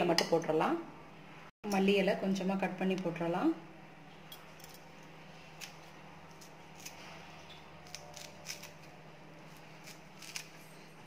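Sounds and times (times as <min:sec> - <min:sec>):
low steady hum: 0:00.0 - 0:11.0
snips cutting herbs: 0:07.8 - 0:08.9, 0:09.5 - 0:10.6.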